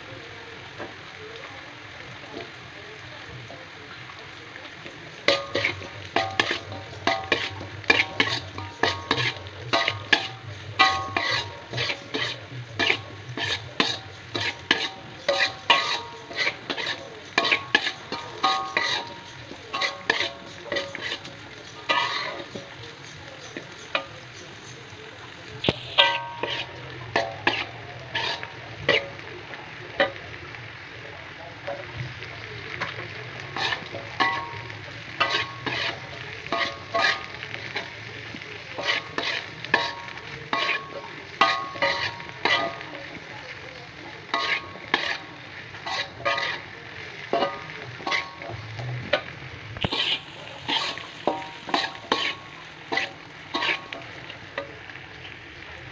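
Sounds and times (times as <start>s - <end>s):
frying sizzle: 0.0s - 55.9s
metal spatula scraping a wok: 5.2s - 24.8s, 25.6s - 29.3s, 32.8s - 42.9s, 44.2s - 54.6s.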